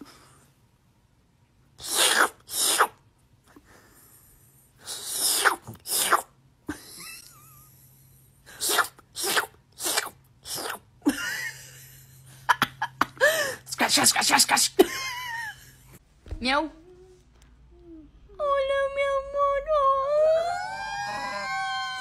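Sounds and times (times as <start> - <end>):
person making breathy mouth noises: 8.6 - 10.9.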